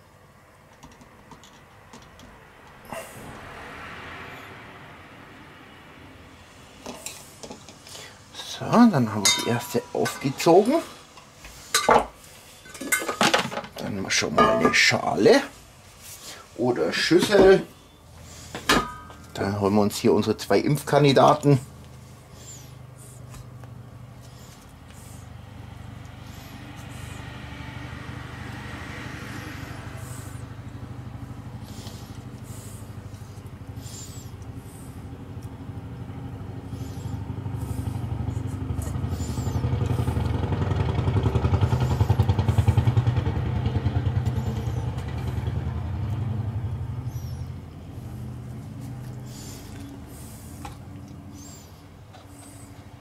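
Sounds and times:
engine-like drone: 0.8 - 11.8, 16.2 - 53.0.

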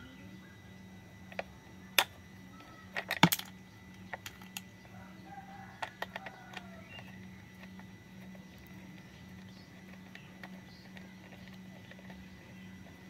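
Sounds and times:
plastic toy clicks and clatters: 1.3 - 4.7, 5.6 - 7.9.

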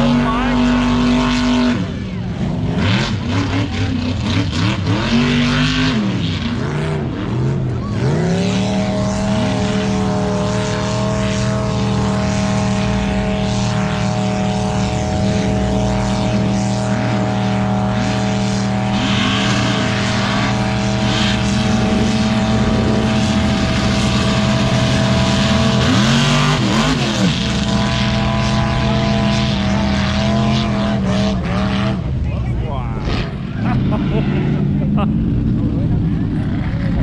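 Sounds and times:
vehicle engine at high revs: 0.0 - 37.0.

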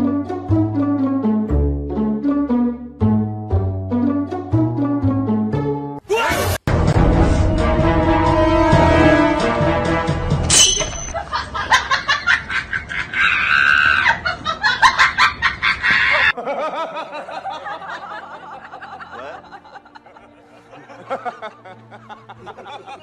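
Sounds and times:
background music: 0.0 - 11.1, 16.8 - 23.0
person laughing: 11.2 - 23.0.

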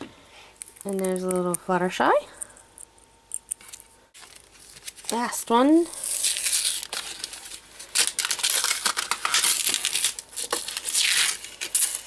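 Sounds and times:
plastic blister pack crinkling: 3.5 - 12.0.

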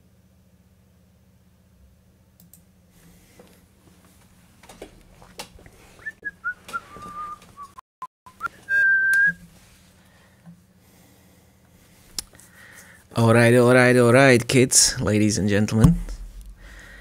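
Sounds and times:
person whistling: 6.0 - 9.4.

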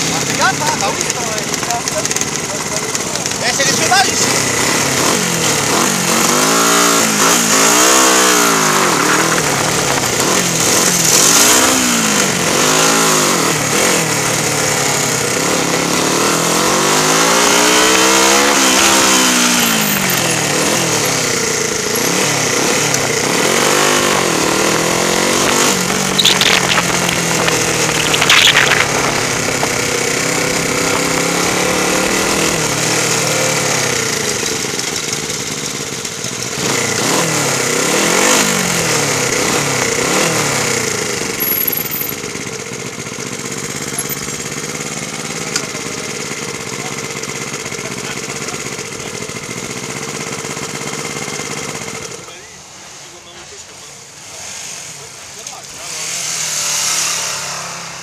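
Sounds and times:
motorcycle engine revving: 0.0 - 58.0
sharp rattles: 19.5 - 33.0, 41.2 - 44.8.

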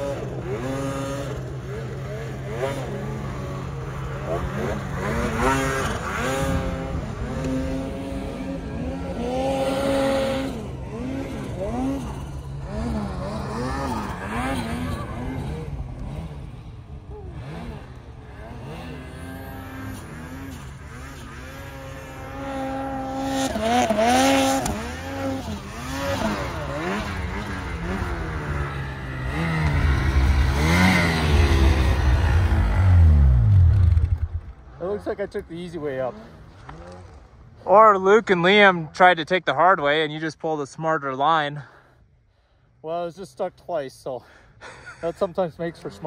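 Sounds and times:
snowmobile engines revving: 0.0 - 41.7, 42.8 - 46.0.

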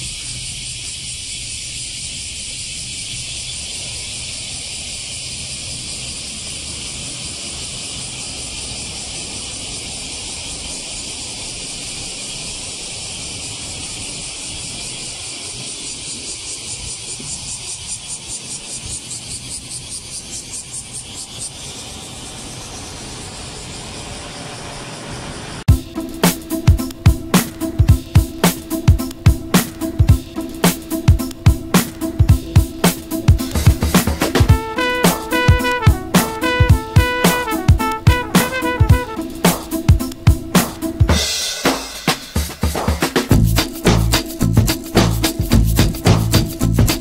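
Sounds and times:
cicadas buzzing: 0.0 - 47.0.

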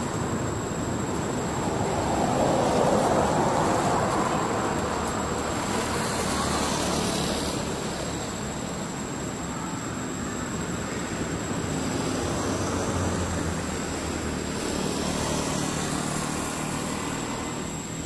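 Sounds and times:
road traffic passing: 0.0 - 18.0.

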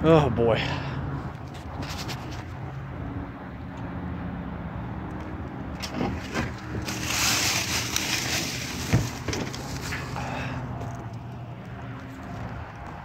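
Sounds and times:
footsteps crunching on gravel: 6.5 - 10.1.

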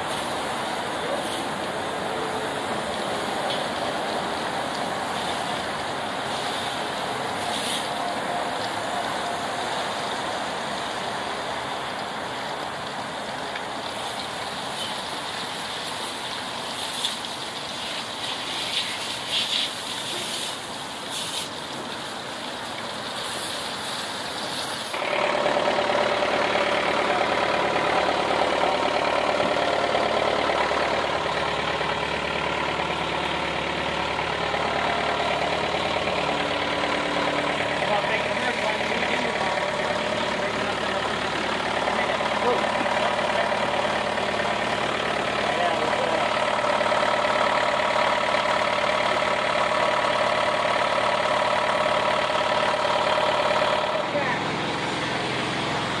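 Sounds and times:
hose spraying water on deck: 0.0 - 56.0
boat engine running: 24.9 - 56.0.

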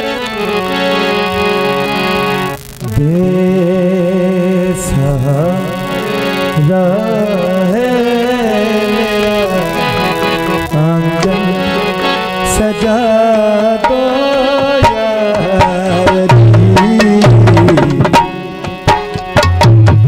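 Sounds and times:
man singing ornamented melody: 0.0 - 19.3
sustained keyboard accompaniment: 0.0 - 20.0.

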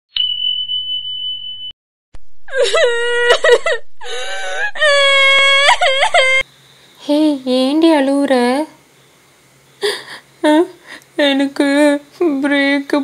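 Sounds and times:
high-pitched crying wail: 2.5 - 6.4.

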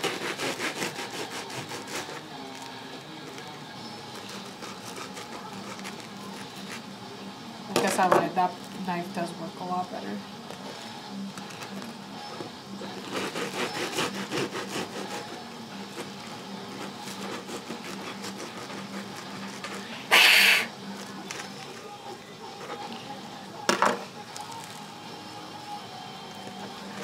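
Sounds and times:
bread knife sawing bread roll: 0.0 - 2.7, 3.8 - 6.9, 12.8 - 21.9
person making loud burst of noise: 20.1 - 20.7.

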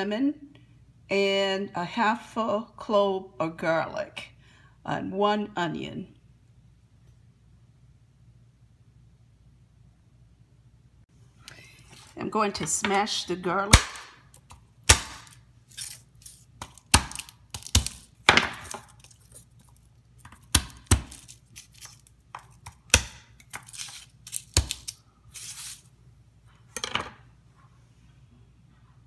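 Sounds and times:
knife smashing garlic on board: 13.7 - 16.0, 16.6 - 19.1, 20.2 - 25.0
garlic skin rustling: 13.9 - 25.9.

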